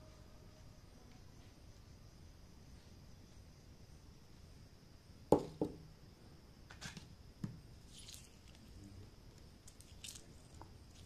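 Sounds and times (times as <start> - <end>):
sharp knock on tray: 5.3 - 5.8
soft squishing and rustling: 7.8 - 11.0.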